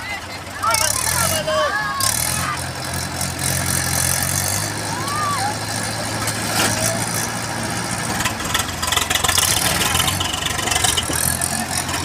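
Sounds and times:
diesel tractor engines running: 0:00.0 - 0:12.0.

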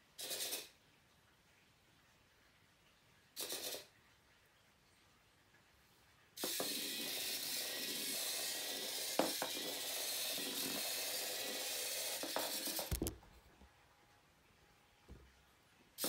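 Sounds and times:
small servo motors whirring: 0:03.4 - 0:03.9, 0:06.4 - 0:13.1.

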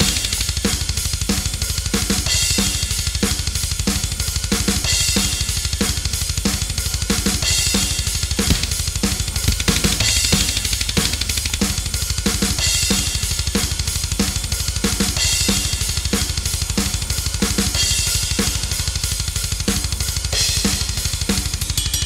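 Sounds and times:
programmed drum beat: 0:06.7 - 0:21.9
dense low backing: 0:08.4 - 0:12.5.

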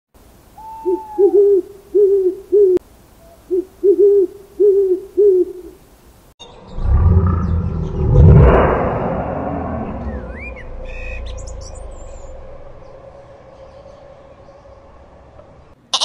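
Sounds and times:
owl hooting: 0:00.6 - 0:05.8
loud low rumbling: 0:06.5 - 0:15.8.

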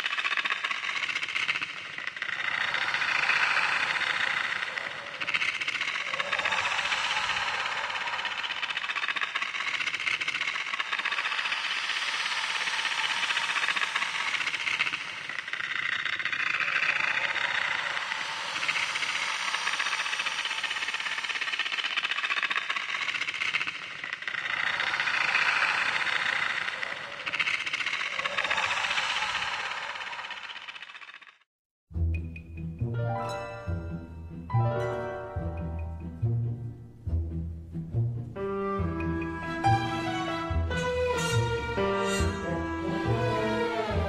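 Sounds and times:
loud hissing rasping noise: 0:00.0 - 0:31.4, 0:38.8 - 0:44.0.

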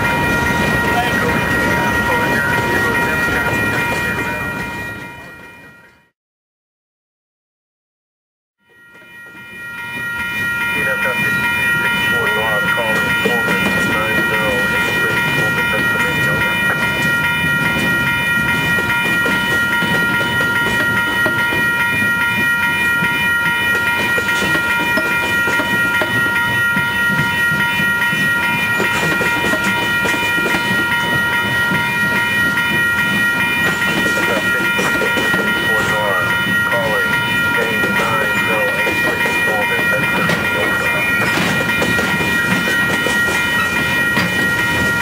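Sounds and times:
freight train rumbling past: 0:00.0 - 0:05.8, 0:09.1 - 0:45.0
wheels clacking over rails: 0:10.6 - 0:45.0.

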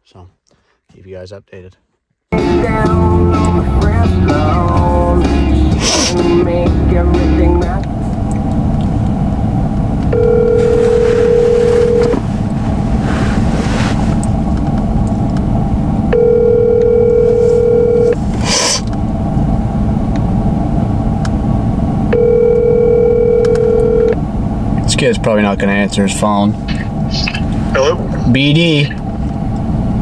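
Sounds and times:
low rumble in truck cab: 0:02.3 - 0:30.0
telephone ringback tone: 0:10.1 - 0:12.2, 0:16.2 - 0:18.2, 0:22.2 - 0:24.2.

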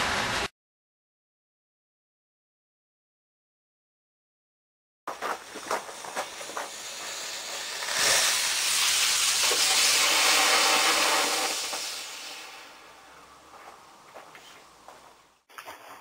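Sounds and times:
rocket motor hissing: 0:05.4 - 0:13.4.

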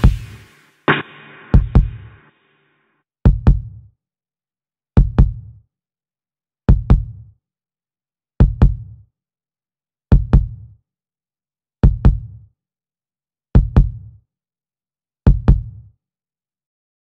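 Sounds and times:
heartbeat-like bass drum thumps: 0:00.0 - 0:02.3, 0:03.3 - 0:03.8, 0:05.0 - 0:05.5, 0:06.7 - 0:07.2, 0:08.4 - 0:08.9, 0:10.1 - 0:10.6, 0:11.8 - 0:12.4, 0:13.6 - 0:14.1, 0:15.3 - 0:15.7.

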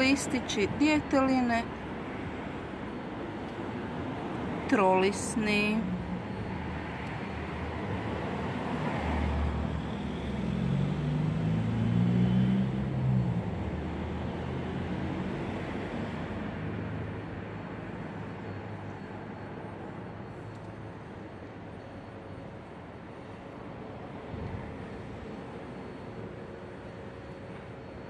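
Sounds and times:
motor vehicle passing: 0:10.3 - 0:13.1.

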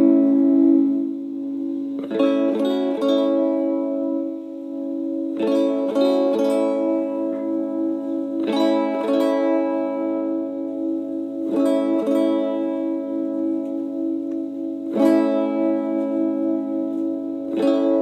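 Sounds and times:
guitar chords with long sustain: 0:00.0 - 0:18.0.

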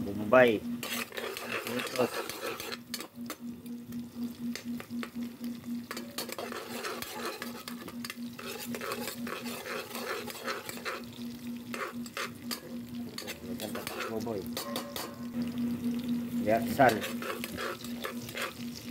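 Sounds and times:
onions sizzling in hot oil: 0:00.0 - 0:18.9
spatula scraping a metal pot: 0:00.8 - 0:03.4, 0:05.8 - 0:15.3, 0:16.6 - 0:18.9.

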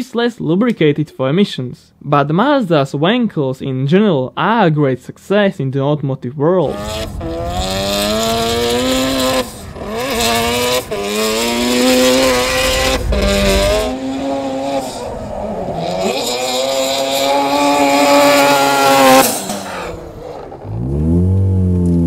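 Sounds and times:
rotary engine revving: 0:06.6 - 0:22.0.

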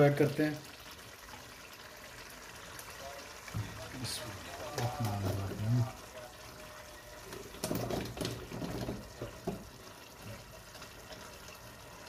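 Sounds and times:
meat sizzling in a pot: 0:00.0 - 0:12.0.

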